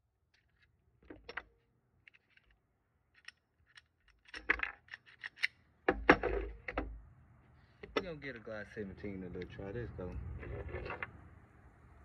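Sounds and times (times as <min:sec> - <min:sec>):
pistols and magazines clicking: 0:00.3 - 0:07.0
clatter of hard knocks: 0:05.9 - 0:07.0.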